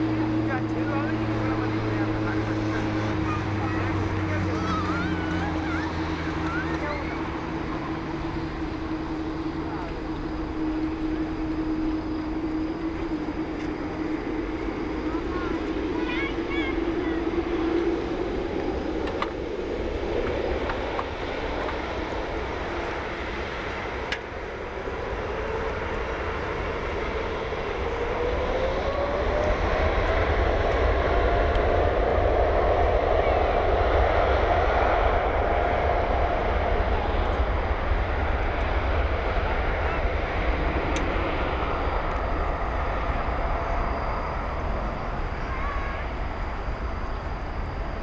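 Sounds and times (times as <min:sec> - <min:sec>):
jet engine whine rising: 0:00.0 - 0:48.0
jet engines roaring: 0:00.0 - 0:48.0.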